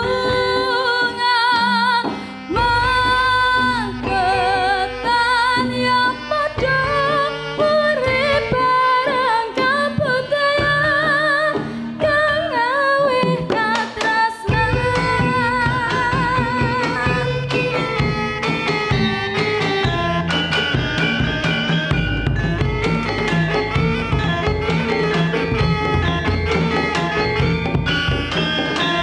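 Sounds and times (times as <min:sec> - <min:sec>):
woman singing with vibrato: 0:00.0 - 0:20.3
gamelan music: 0:00.0 - 0:29.0.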